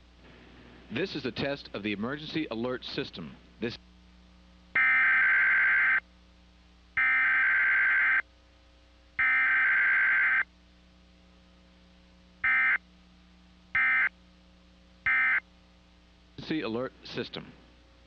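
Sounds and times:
screechy digital data bursts: 4.8s - 6.0s, 7.0s - 8.2s, 9.2s - 10.4s, 13.8s - 14.1s.

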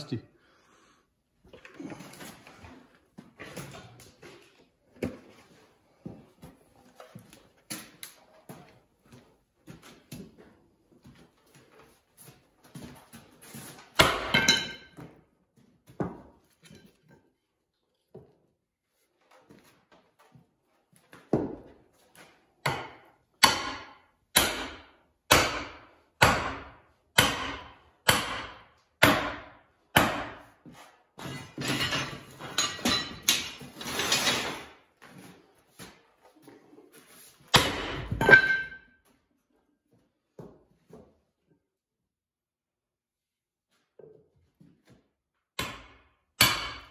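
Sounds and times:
sledgehammer striking metal: 22.7s - 30.4s.

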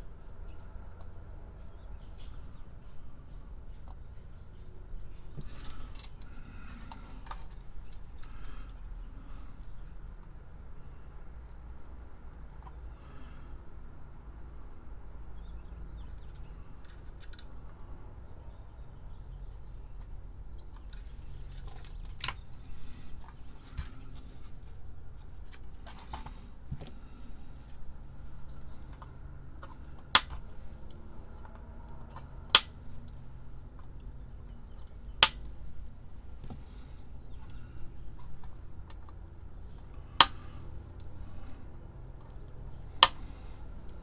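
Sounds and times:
handling clicks: 28.9s - 33.2s
side cutters snipping wire leads: 29.7s - 31.5s, 34.8s - 35.6s, 39.8s - 41.1s, 42.9s - 44.0s.

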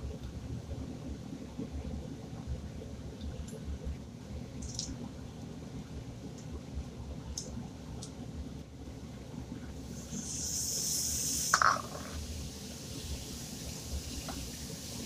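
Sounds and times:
vegetables frying in a wok: 9.7s - 15.0s.

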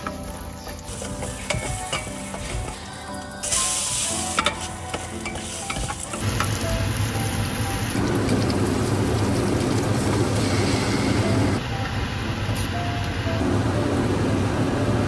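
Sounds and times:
food sizzling in hot oil: 0.0s - 11.6s.

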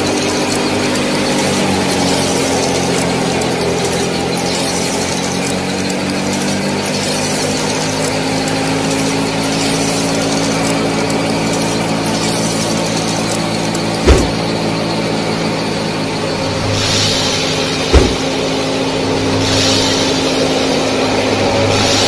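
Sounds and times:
thresher motor rattling: 0.0s - 22.0s
low thump: 14.0s - 14.4s, 17.9s - 18.4s.

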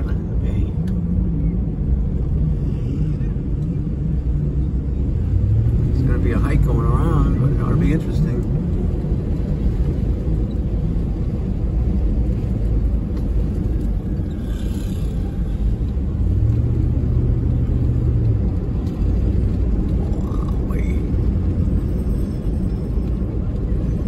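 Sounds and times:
car cabin road rumble: 0.0s - 24.0s.

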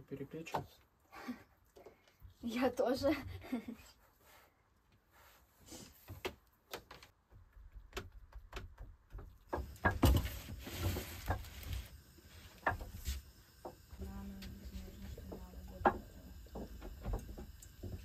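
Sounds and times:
clatter and rustling: 7.9s - 11.9s.

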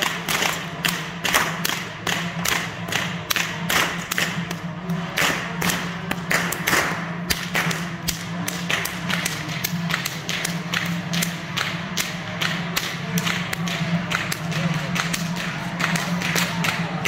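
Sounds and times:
whip cracking: 0.0s - 16.9s
steady low drone: 0.0s - 17.0s.

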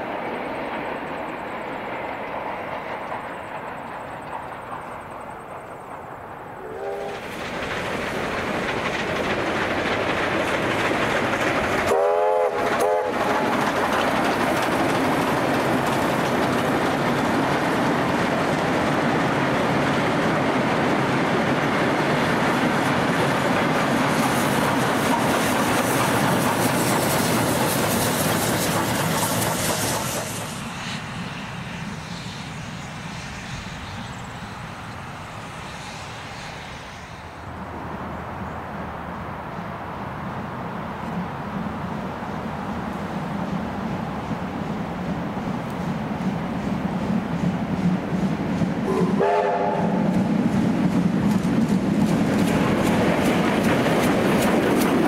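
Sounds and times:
train wheels clattering: 0.6s - 31.2s, 43.5s - 55.0s
train warning horn blasts: 6.6s - 7.2s, 11.9s - 13.4s, 48.9s - 50.1s.

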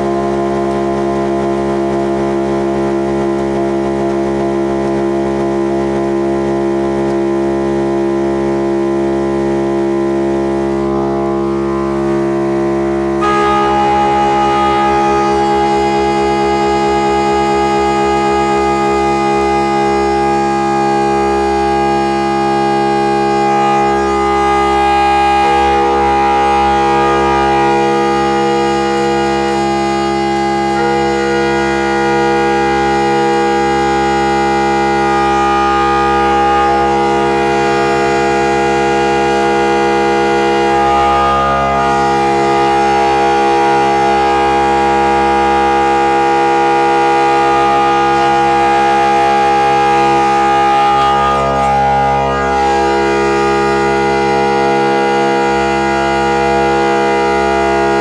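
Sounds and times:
organ pipes shifting pitch: 0.0s - 58.0s
pipe organ chord: 0.0s - 58.0s.

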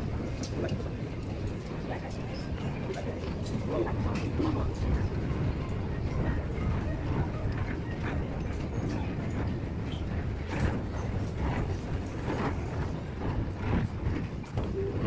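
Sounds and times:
escalator rumbling: 0.0s - 15.0s.

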